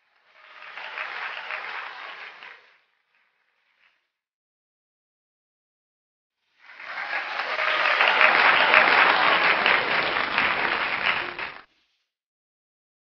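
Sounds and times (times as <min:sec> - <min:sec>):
crowd applause: 0:00.0 - 0:03.9, 0:06.6 - 0:11.7.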